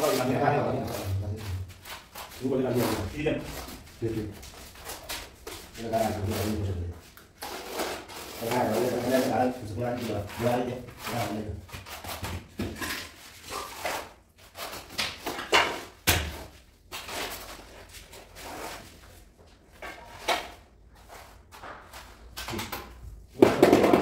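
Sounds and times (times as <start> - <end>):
trowel scraping over floor: 7.4 - 14.9.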